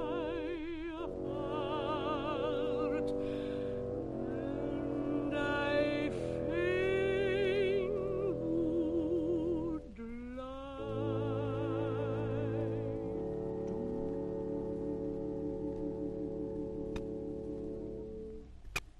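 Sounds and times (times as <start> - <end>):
sustained accompaniment chords: 0.0 - 10.0, 10.7 - 18.6
operatic soprano singing: 0.0 - 18.0.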